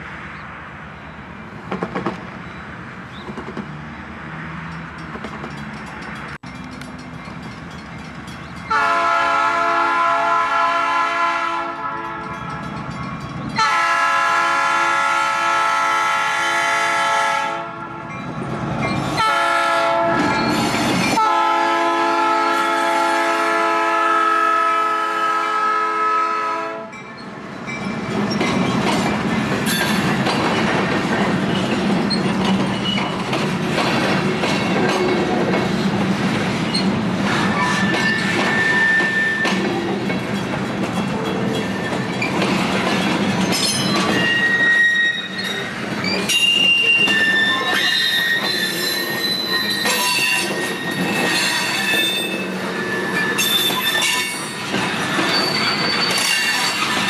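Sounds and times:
train wheels clattering over rail joints: 1.6s - 2.4s, 3.2s - 3.8s, 4.7s - 8.7s, 27.7s - 44.7s, 45.3s - 57.0s
locomotive air horn blasts: 8.7s - 12.4s, 13.6s - 18.1s, 19.2s - 20.4s, 21.2s - 26.9s.

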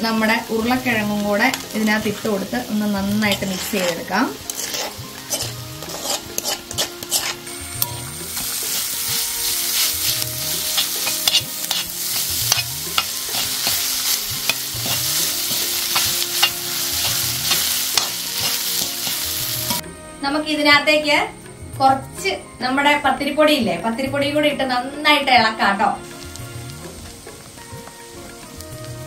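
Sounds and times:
food sizzling in oil: 0.0s - 20.0s, 24.7s - 29.0s
metal spoon scraping pan: 3.1s - 19.8s.

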